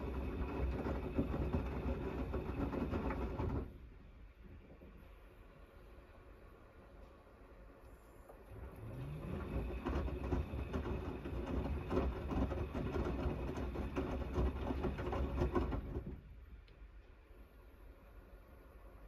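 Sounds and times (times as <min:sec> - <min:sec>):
laundry sloshing and thudding in drum: 0:00.0 - 0:03.8, 0:08.5 - 0:16.3
washing machine motor whine: 0:00.0 - 0:16.4.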